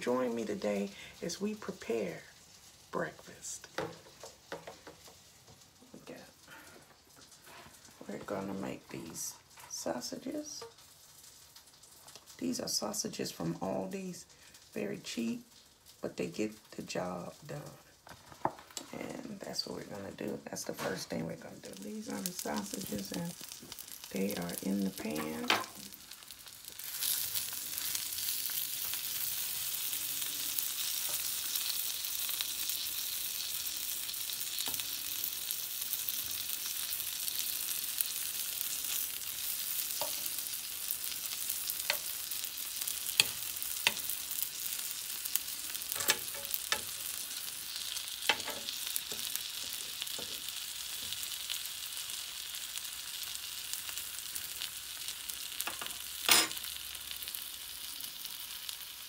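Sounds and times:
sausages sizzling in a pan: 0.0 - 59.0
fork scraping a pan: 45.9 - 47.0.

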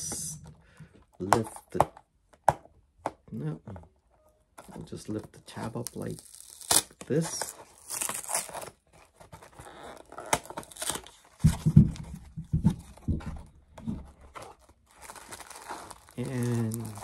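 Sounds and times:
cardboard box ripping: 5.9 - 11.5, 14.3 - 17.0.

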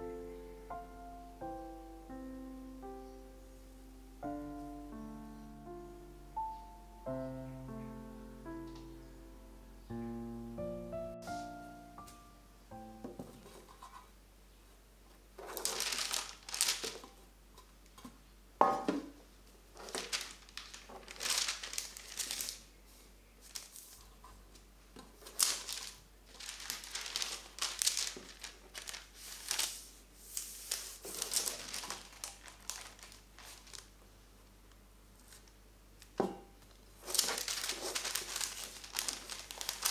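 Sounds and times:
parchment paper rustling and crinkling: 11.2 - 12.2, 13.0 - 14.1, 15.2 - 18.2, 19.5 - 34.2, 35.2 - 39.9.

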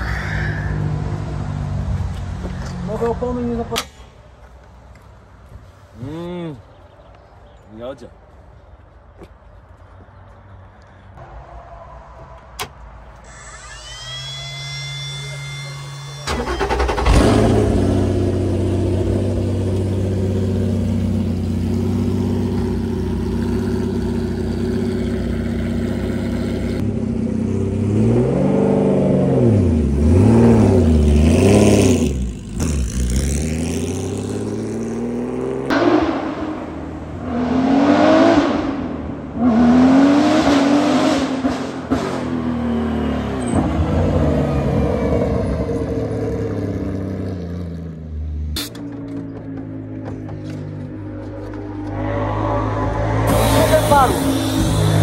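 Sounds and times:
race car engine revving: 51.4 - 55.0.

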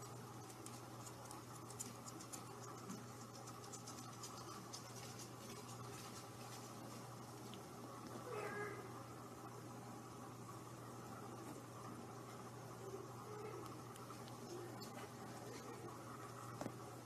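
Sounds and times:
kitten scratching and ticking: 0.0 - 7.7
low steady hum: 0.0 - 17.0.

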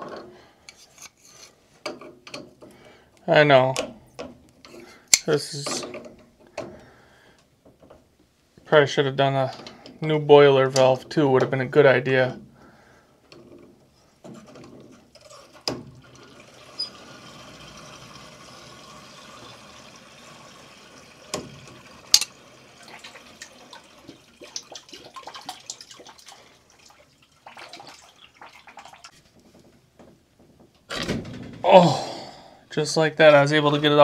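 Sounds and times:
water trickling and hissing: 16.1 - 29.2.

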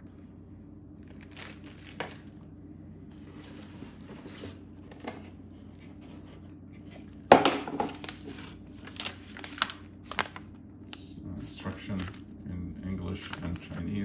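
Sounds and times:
bubble wrap bag crinkling: 1.0 - 2.4, 6.8 - 10.7, 11.4 - 14.0
cardboard box rustling: 3.2 - 7.3.

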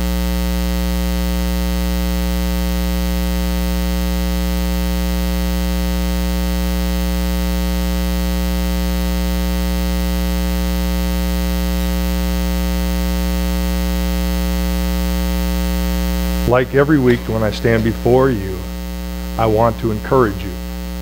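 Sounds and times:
electrical mains hum: 12.1 - 21.0.

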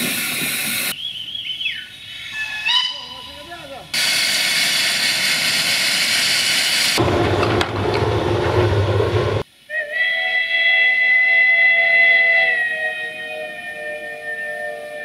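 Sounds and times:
steam locomotive whistle: 9.7 - 15.0.

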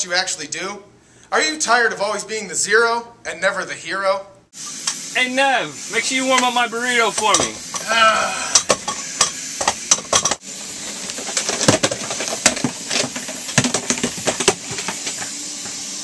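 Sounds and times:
objects clattering and knocking: 8.6 - 15.8.

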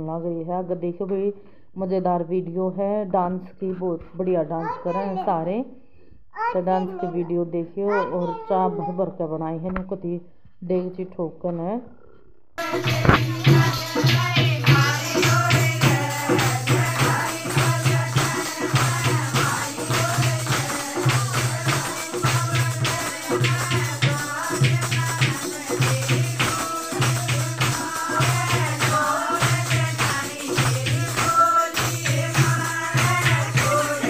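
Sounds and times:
jingling clapping percussion beat: 12.6 - 34.0
women singing: 12.6 - 34.0.

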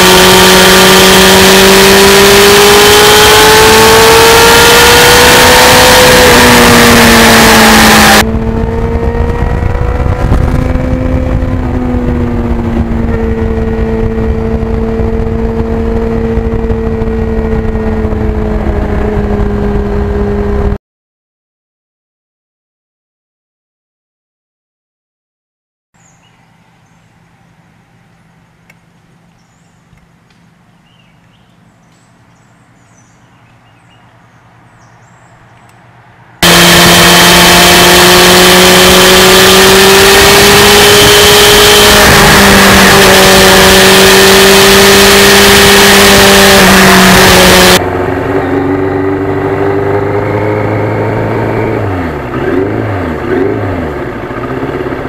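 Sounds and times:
motorcycle engine: 0.0 - 20.8, 36.4 - 55.0
wind rush: 6.1 - 20.8
bird chirps: 26.0 - 35.8.

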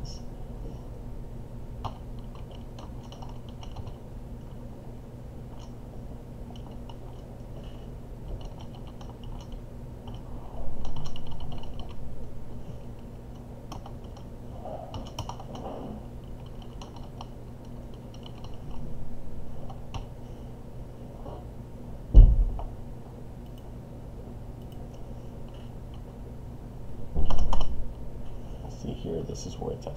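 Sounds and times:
low electrical hum: 0.0 - 29.9
computer keyboard typing: 1.8 - 4.0, 6.5 - 7.3, 8.3 - 10.2, 10.8 - 12.0, 13.3 - 14.3, 14.9 - 15.7, 16.3 - 18.8.

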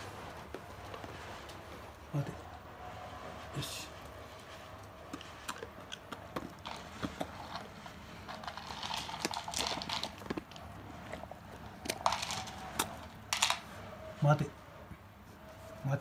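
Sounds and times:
dog crunching treat: 4.8 - 13.7.

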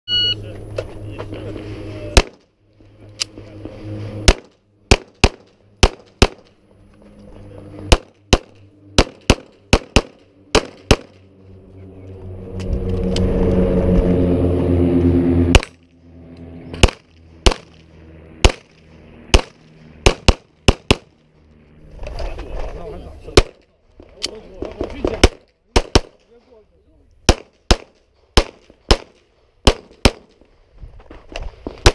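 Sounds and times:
loud steady rumble: 0.1 - 31.9
pistol shots: 2.2 - 2.4, 4.2 - 6.5, 7.9 - 11.2, 16.8 - 17.8, 18.4 - 18.7, 19.3 - 21.1, 25.0 - 26.2, 27.2 - 30.4.

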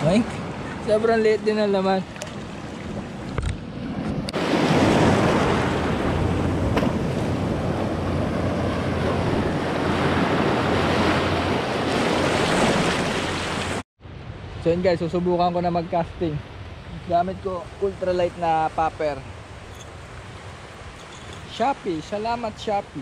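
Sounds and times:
surf breaking over rocks: 4.3 - 13.8.

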